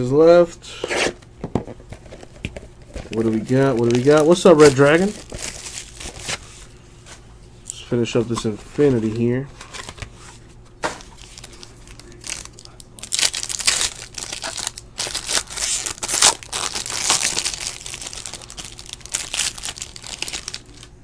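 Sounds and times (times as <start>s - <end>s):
foil wrapper tearing and crinkling: 3.0s - 6.4s, 11.0s - 20.9s.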